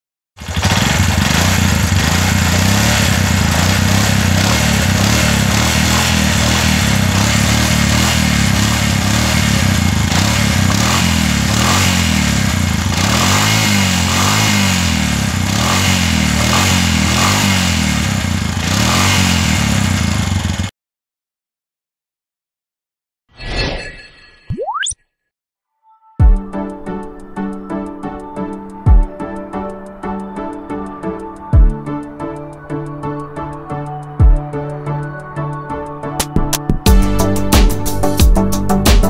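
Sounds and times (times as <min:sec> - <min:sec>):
three-wheeler engine running: 0:00.4 - 0:20.7.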